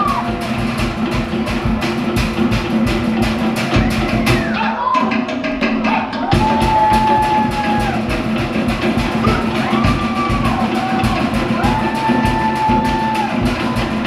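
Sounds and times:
fast driving drumming: 0:00.0 - 0:14.0.

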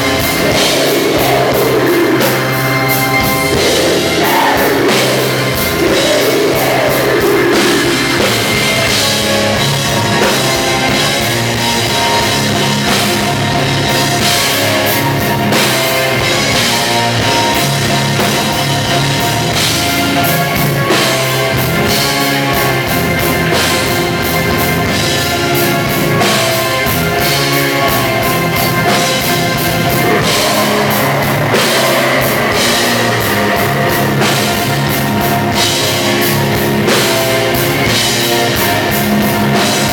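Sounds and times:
distorted guitars: 0:00.0 - 0:39.9
metal band playing: 0:00.0 - 0:39.9
pounding drum kit: 0:00.0 - 0:39.9
sustained keyboard chords: 0:00.0 - 0:39.9.

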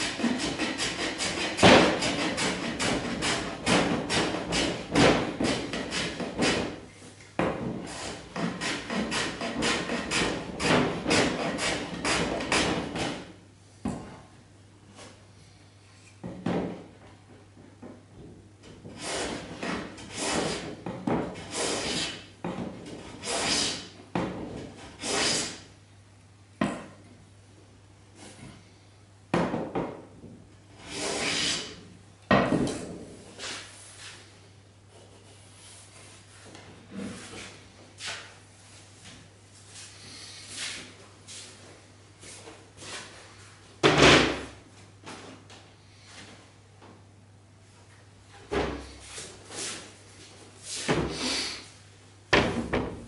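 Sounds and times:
hand plane shaving wood: 0:00.0 - 0:06.7, 0:07.9 - 0:13.1, 0:19.0 - 0:20.7, 0:21.4 - 0:22.2, 0:23.2 - 0:23.8, 0:25.0 - 0:25.6, 0:30.9 - 0:31.7.

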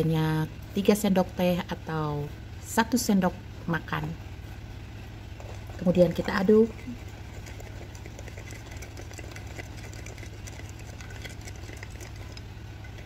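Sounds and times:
steady low hum: 0:00.0 - 0:13.0
plastic spoon stirring in glass mug: 0:05.4 - 0:13.0.

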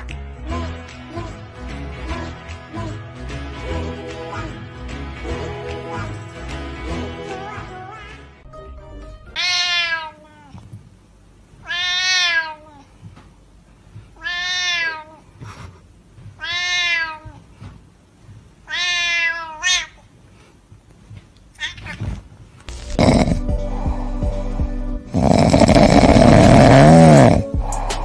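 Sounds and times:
cat meowing loudly: 0:09.4 - 0:10.6, 0:11.6 - 0:12.8, 0:14.2 - 0:15.2, 0:16.4 - 0:17.4, 0:18.6 - 0:20.0
cat yelp: 0:09.4 - 0:10.6, 0:11.6 - 0:12.9, 0:14.2 - 0:15.2, 0:16.4 - 0:17.4, 0:18.6 - 0:20.0, 0:21.5 - 0:22.2.

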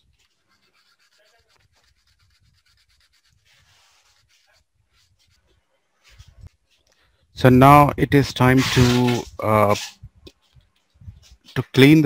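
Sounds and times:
light scratching: 0:00.0 - 0:07.1, 0:08.2 - 0:12.0.

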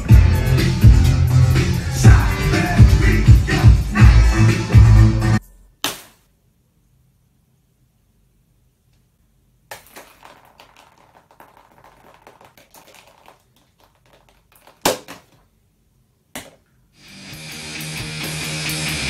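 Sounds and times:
paint can clattering onto floor: 0:09.7 - 0:15.4.

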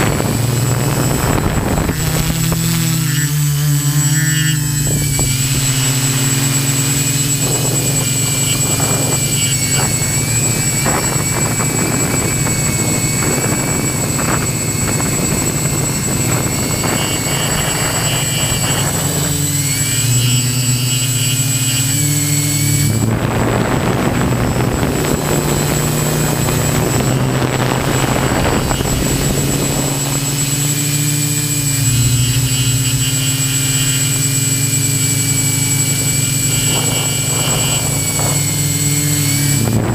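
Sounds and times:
drone propellers buzzing: 0:00.0 - 0:39.9
rushing noise: 0:21.8 - 0:39.9.

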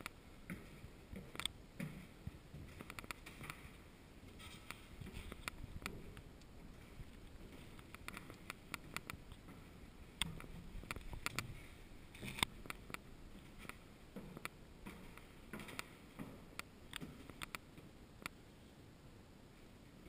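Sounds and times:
footsteps on wooden stairs: 0:00.4 - 0:11.6, 0:13.3 - 0:17.3.

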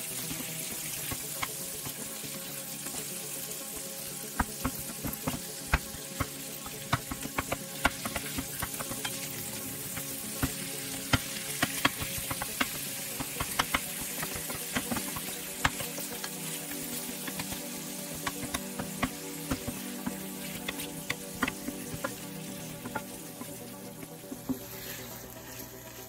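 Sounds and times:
fish sizzling in hot oil: 0:00.0 - 0:26.0
spatula tapping and scraping pan: 0:04.4 - 0:24.7.

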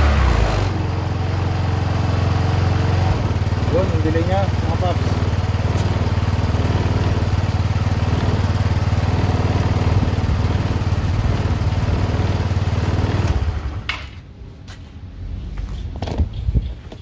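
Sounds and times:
scooter engine idling: 0:00.8 - 0:14.2.

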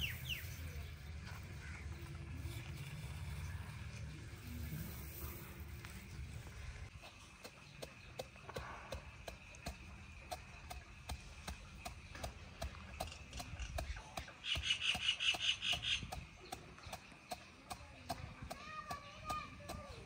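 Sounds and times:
pestle pounding in a mortar: 0:07.1 - 0:20.0
rapid high chirping: 0:13.0 - 0:17.0.

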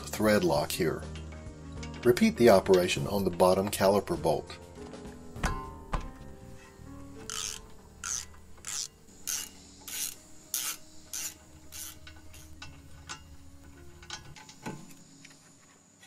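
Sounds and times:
ratchet wrench rasping: 0:07.2 - 0:14.6.

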